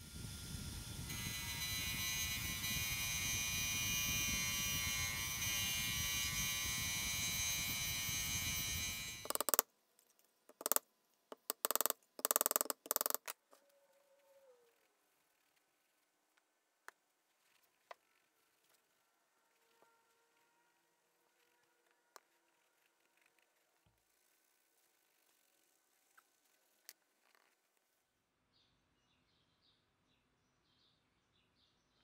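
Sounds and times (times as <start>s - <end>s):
bench grinder motor hum: 0.0s - 9.6s
metal rasping on grinding wheel: 1.1s - 9.5s.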